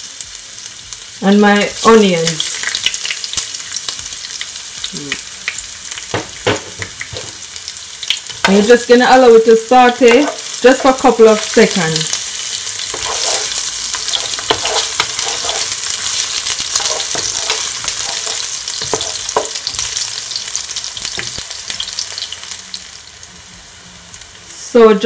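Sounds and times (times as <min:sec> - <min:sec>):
garlic and onion sizzling in oil: 0:00.0 - 0:25.0
plastic spatula scraping a pan: 0:12.9 - 0:15.8.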